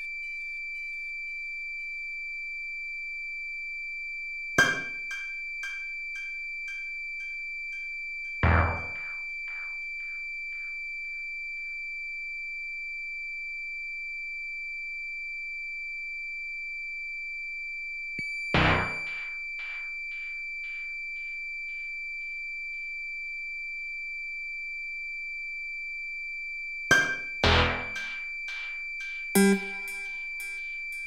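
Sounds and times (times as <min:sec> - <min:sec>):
high sine-tone drone: 0:00.0 - 0:16.3, 0:18.2 - 0:22.3, 0:26.9 - 0:31.0
sharp struck hits with echoes: 0:18.6 - 0:19.8, 0:26.9 - 0:28.8, 0:29.4 - 0:30.7.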